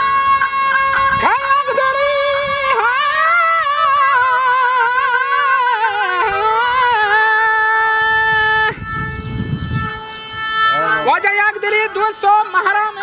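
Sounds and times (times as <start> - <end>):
fiddle and lute drone: 0.0 - 13.0
man singing wordless vocal line: 1.2 - 8.0.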